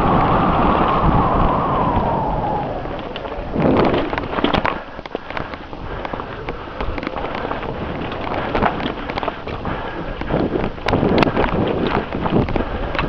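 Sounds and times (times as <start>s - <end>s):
steady rushing noise: 0.0s - 13.0s
mountain bike clattering: 2.9s - 13.0s.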